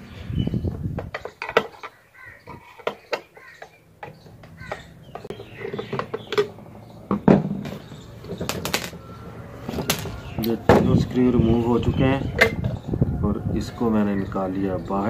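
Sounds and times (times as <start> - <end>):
crows cawing: 1.8 - 5.7.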